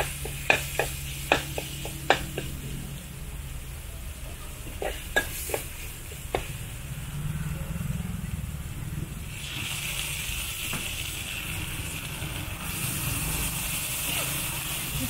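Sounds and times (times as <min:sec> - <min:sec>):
meat sizzling: 0:00.0 - 0:02.6, 0:09.3 - 0:15.0
spatula clanking on wok: 0:00.0 - 0:02.6, 0:04.6 - 0:06.6
low rumble: 0:06.5 - 0:09.4.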